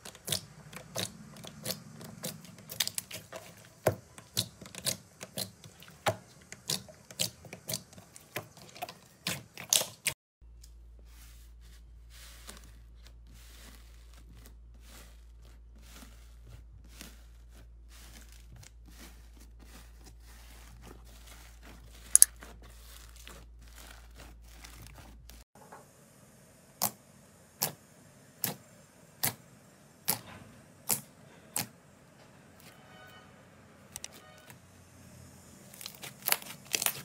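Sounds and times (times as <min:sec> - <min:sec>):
slime crackling: 0:00.0 - 0:10.1, 0:12.3 - 0:25.4, 0:35.7 - 0:37.0.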